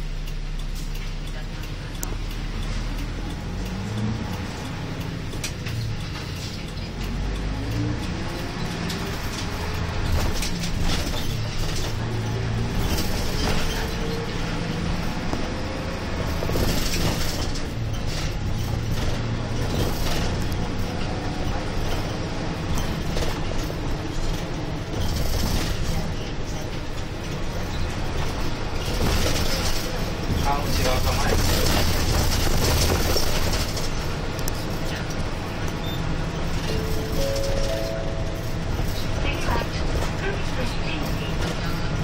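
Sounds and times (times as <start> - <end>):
bus engine rumbling: 0.0 - 42.0
road noise: 0.0 - 42.0.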